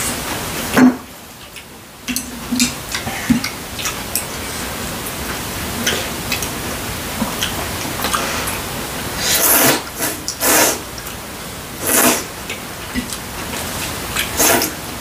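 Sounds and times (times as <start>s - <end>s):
noodles being slurped: 9.2s - 10.9s, 11.8s - 12.3s, 13.5s - 14.8s.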